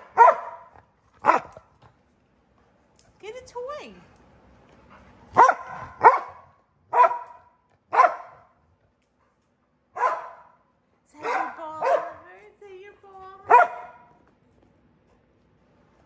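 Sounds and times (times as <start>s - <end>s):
dog barking: 0.0s - 1.7s, 5.4s - 8.5s, 10.0s - 10.6s, 11.2s - 12.3s, 13.4s - 14.1s.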